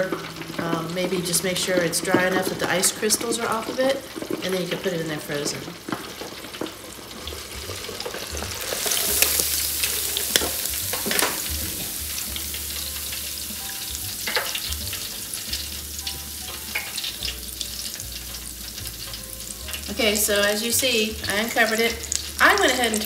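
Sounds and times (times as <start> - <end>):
oil popping and crackling: 0.0 - 23.0
shrimp sizzling in hot oil: 0.0 - 23.0.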